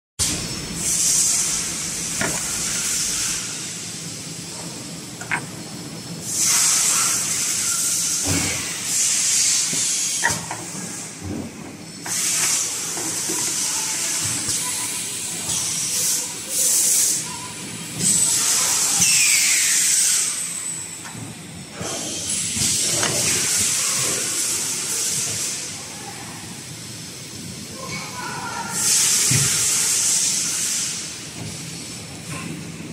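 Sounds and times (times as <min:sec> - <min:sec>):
compressed air hissing: 0:00.2 - 0:17.4, 0:28.5 - 0:32.3.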